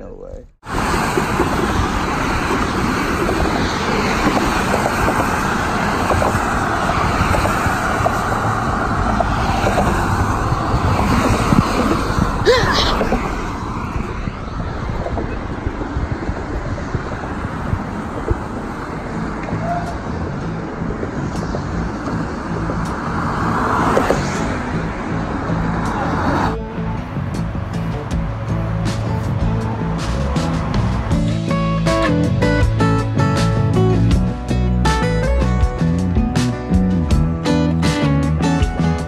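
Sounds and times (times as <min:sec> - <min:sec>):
highway traffic rushing past: 0:00.6 - 0:39.0
brief high squeal: 0:19.6 - 0:20.0.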